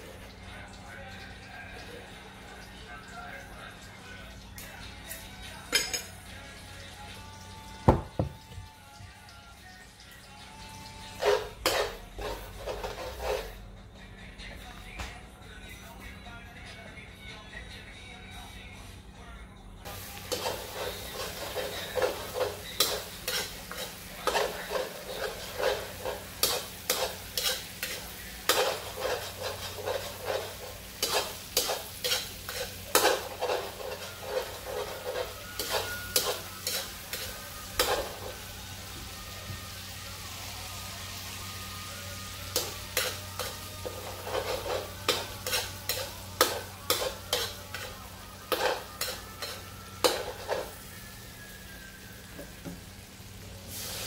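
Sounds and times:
paste sizzling in oil: 10.5 - 13.6, 19.9 - 54.0
metal spatula scraping a wok: 11.0 - 13.6, 19.9 - 38.5, 42.5 - 51.1.

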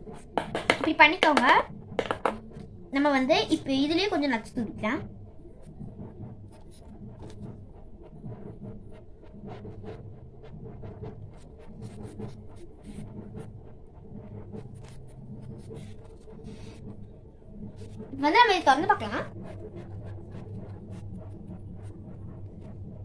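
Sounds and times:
low steady hum: 0.0 - 23.0
small utensils clicking and tapping: 0.4 - 2.5.

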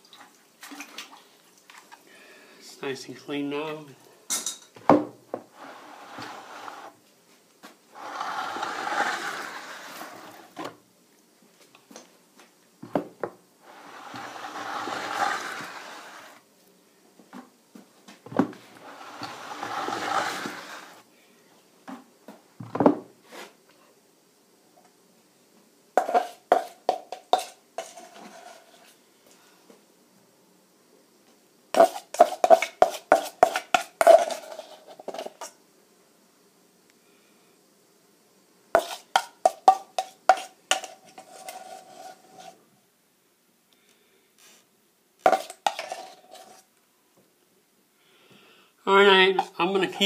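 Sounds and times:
mould scraping along plaster: 5.5 - 7.0, 7.9 - 10.7, 13.7 - 16.4, 18.7 - 21.0, 26.0 - 29.0, 31.8 - 35.5, 38.8 - 42.7, 45.3 - 46.7.

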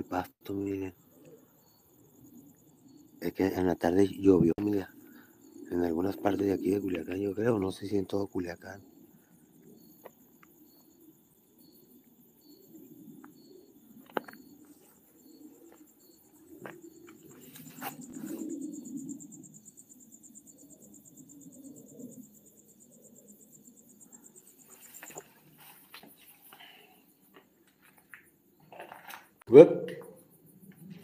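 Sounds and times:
night insects chirping: 0.0 - 31.0
rustling: 14.0 - 18.6, 24.5 - 27.0
footsteps: 24.6 - 26.6.

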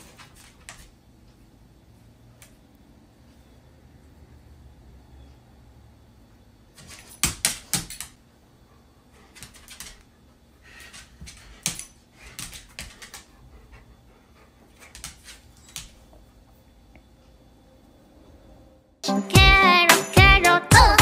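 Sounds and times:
dog claws tapping on hard floor: 6.8 - 8.2, 10.8 - 13.3.

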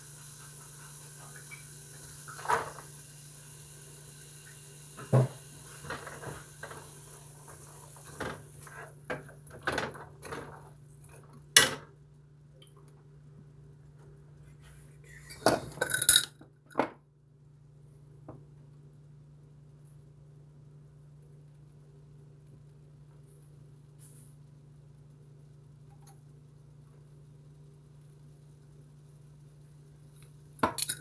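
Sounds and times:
faint steady hum: 0.0 - 31.0
dishes and utensils clattering: 15.2 - 16.4.

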